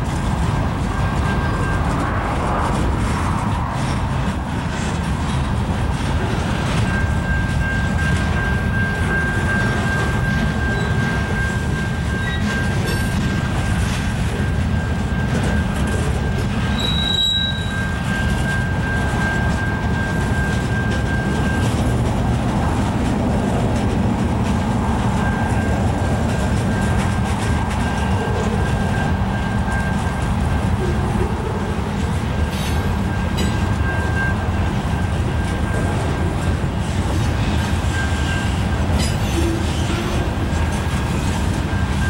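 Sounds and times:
train wheels rumbling on rails: 0:00.0 - 0:42.0
high-pitched wheel squeal: 0:06.6 - 0:22.0, 0:25.1 - 0:42.0.

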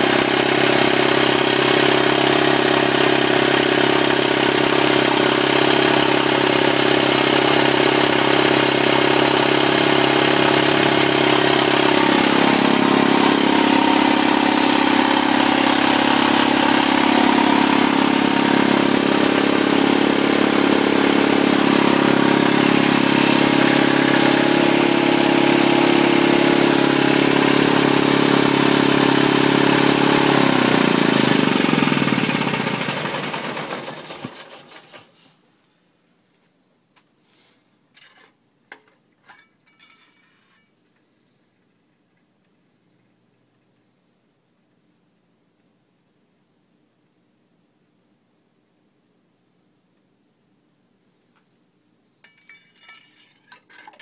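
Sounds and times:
diesel generator running: 0:00.0 - 0:35.0.

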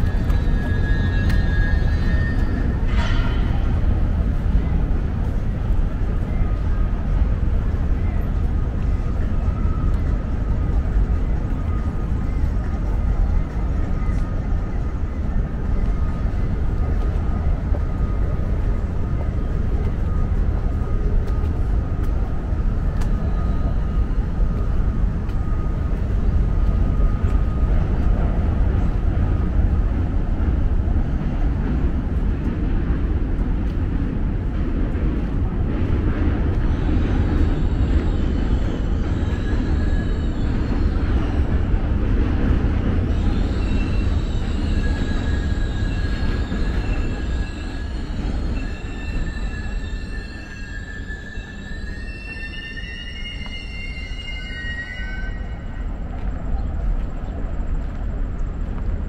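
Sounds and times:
train wheels squealing: 0:00.0 - 0:57.5
low city rumble: 0:00.0 - 0:59.0.

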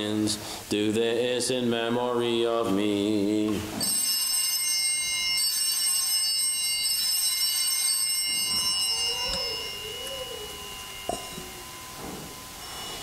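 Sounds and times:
altar bells ringing: 0:03.7 - 0:13.0.

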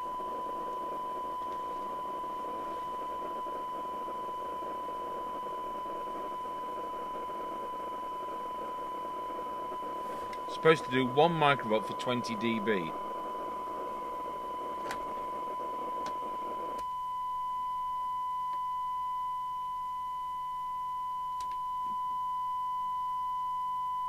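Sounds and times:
background hiss: 0:00.0 - 0:16.8
steady test tone: 0:00.0 - 0:18.0.

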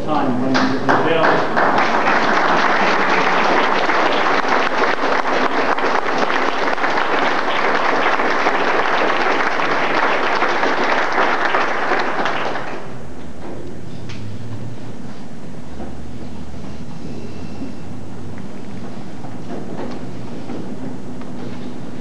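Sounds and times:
low steady hum: 0:00.0 - 0:22.0
audience applauding: 0:00.5 - 0:13.0.

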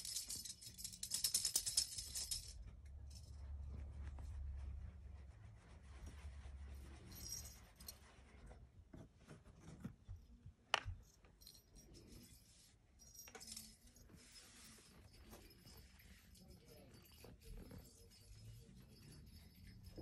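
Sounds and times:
toy ball with bell jingling: 0:00.0 - 0:03.4, 0:06.8 - 0:08.0, 0:11.0 - 0:20.0.

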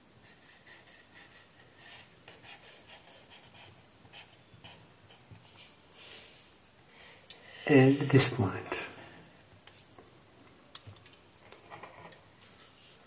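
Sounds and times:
pen scratching on paper: 0:00.2 - 0:05.8.

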